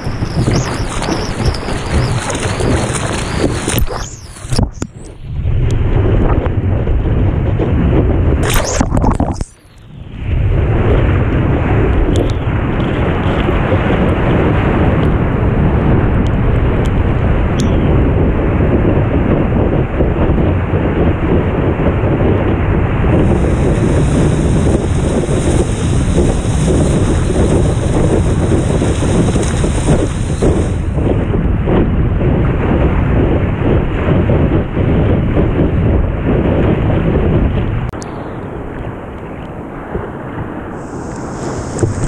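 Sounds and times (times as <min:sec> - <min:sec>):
water rushing past surfboard: 0:00.0 - 0:05.2, 0:39.9 - 0:42.0
wind on microphone: 0:00.0 - 0:42.0
thin high hiss: 0:40.8 - 0:41.9.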